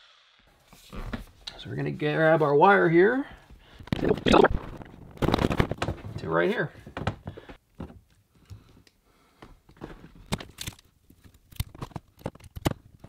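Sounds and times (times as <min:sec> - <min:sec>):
cable clicking and crinkling: 0:03.8 - 0:09.0, 0:09.7 - 0:13.0.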